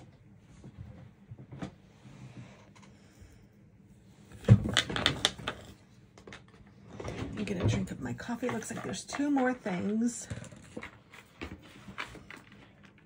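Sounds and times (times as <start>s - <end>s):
clatter and rustling: 4.4s - 13.0s.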